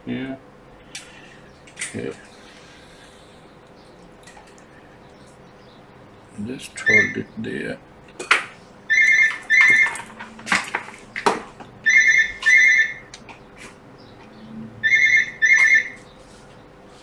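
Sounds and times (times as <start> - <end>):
electronic telephone ringing: 6.8 - 7.2, 8.9 - 10.1, 11.8 - 13.1, 14.8 - 16.0.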